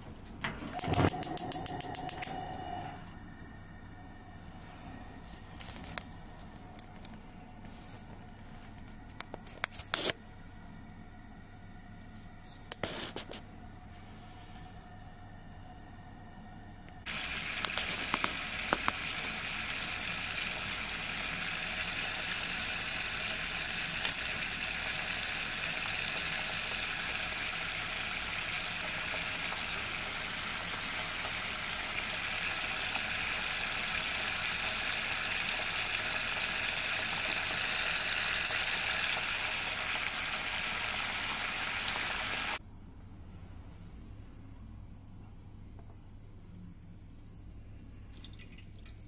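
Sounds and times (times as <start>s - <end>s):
sauce simmering with crackling pops: 17.0s - 42.6s.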